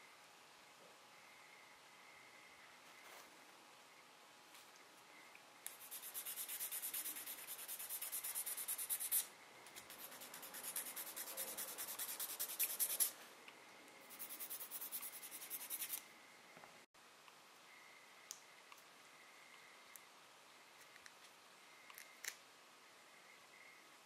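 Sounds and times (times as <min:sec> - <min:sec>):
nail file rasping on fingernail: 0:05.7 - 0:13.1, 0:14.1 - 0:16.0.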